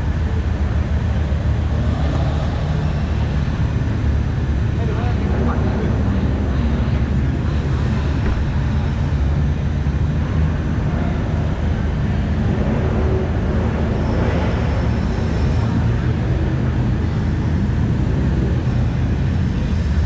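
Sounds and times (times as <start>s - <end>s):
car engine running: 0.0s - 20.0s.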